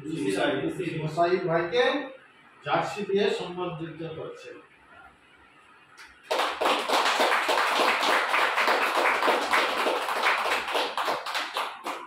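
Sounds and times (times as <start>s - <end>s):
small group applauding: 6.0s - 12.0s.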